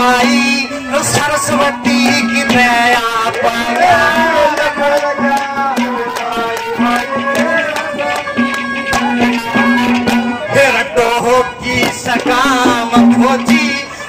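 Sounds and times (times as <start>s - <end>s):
hand drum strokes: 0.0s - 14.0s
melody instrument gliding notes: 0.6s - 11.8s.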